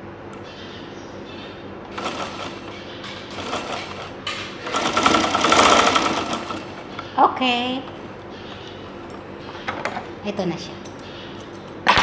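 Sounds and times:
sewing machine stitching: 2.0 - 2.7, 3.3 - 6.7.

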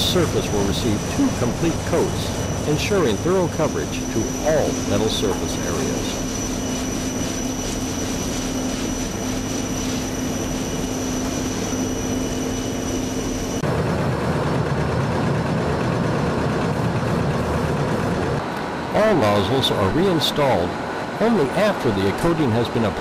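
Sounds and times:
paint sprayer droning: 0.0 - 13.6.

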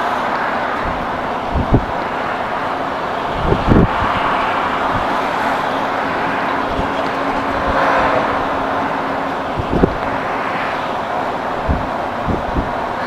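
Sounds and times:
truck cab engine drone: 0.0 - 13.0.

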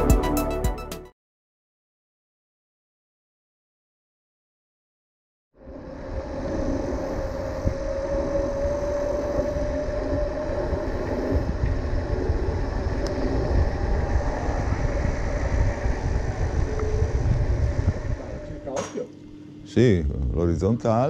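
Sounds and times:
bike tyre hum on asphalt: 5.6 - 18.8
wind rumbling on microphone: 5.6 - 19.1.

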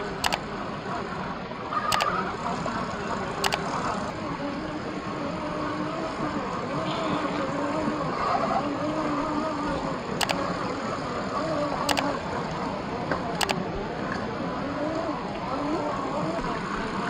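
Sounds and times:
sharp clicks: 0.1 - 0.5, 1.9 - 2.1, 3.4 - 3.7, 10.2 - 10.5, 11.9 - 12.1, 13.4 - 13.6.

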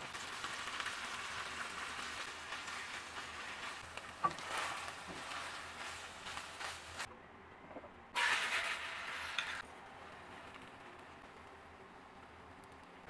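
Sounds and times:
burst of sizzling in a pan: 0.0 - 7.1, 8.2 - 9.6
meat sizzling in a frying pan: 0.0 - 7.1.

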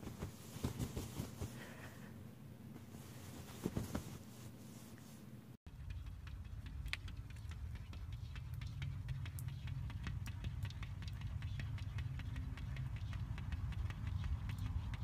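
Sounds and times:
steady low rumble: 5.5 - 15.0.

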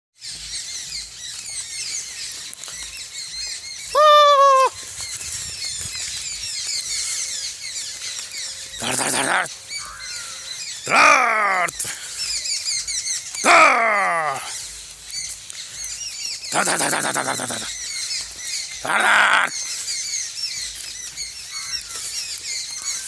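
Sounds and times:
small birds chirping: 0.2 - 23.0
loud drawn-out bird call: 3.9 - 4.9, 8.8 - 12.0, 13.2 - 14.6, 16.4 - 17.9, 18.8 - 19.8.

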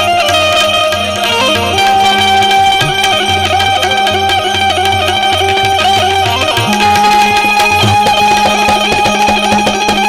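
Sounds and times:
tabla bass strokes: 2.4 - 3.8, 6.0 - 10.0
melody line: 6.4 - 10.0.

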